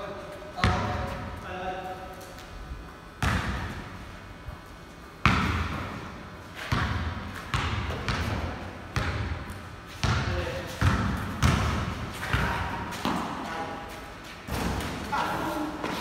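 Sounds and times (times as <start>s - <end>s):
basketball bouncing on concrete: 0.6s - 1.1s, 3.2s - 3.8s, 5.2s - 6.0s, 6.6s - 13.4s.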